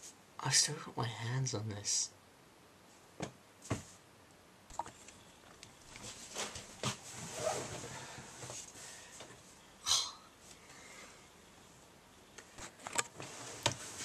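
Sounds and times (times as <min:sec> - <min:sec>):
clothing rustling: 0:04.8 - 0:09.6.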